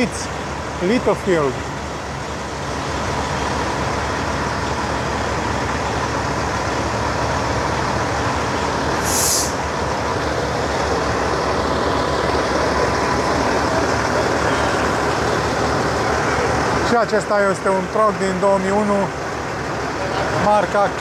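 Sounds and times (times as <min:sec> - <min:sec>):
trucks rumbling: 0:00.0 - 0:21.0
sharp hiss: 0:09.0 - 0:09.6.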